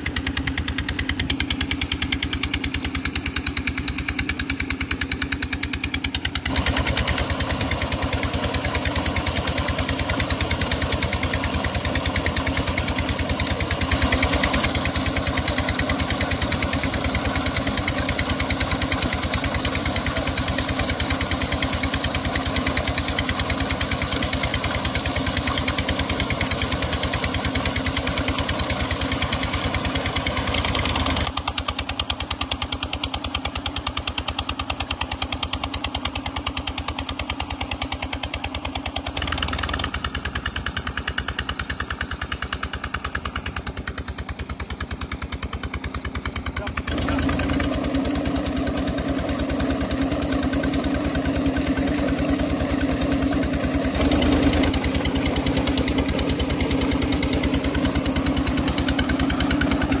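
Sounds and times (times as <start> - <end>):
pump engine chugging: 0.0 - 60.0
water gushing from pipe: 6.4 - 31.4, 46.8 - 60.0.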